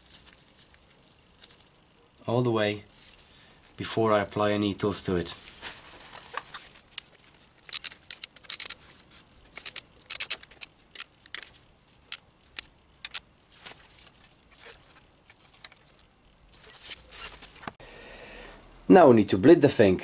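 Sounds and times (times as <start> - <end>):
socket wrench clicking: 7.6 - 8.8, 9.5 - 11.5, 12.1 - 13.2.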